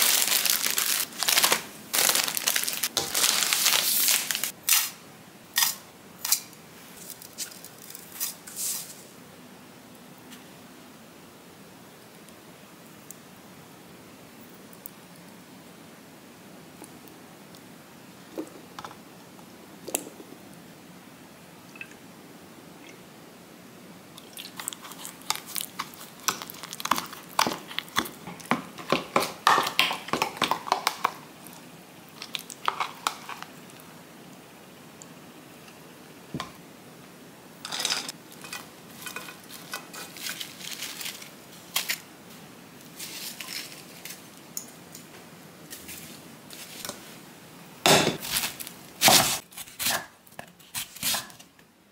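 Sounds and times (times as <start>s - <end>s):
tongs clicking and handling: 37.7s - 42.0s.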